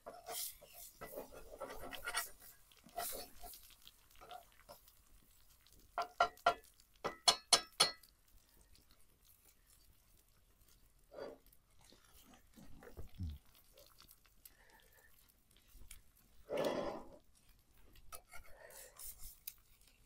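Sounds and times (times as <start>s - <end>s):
metal spatula tapping frying pan: 6.0s - 8.1s.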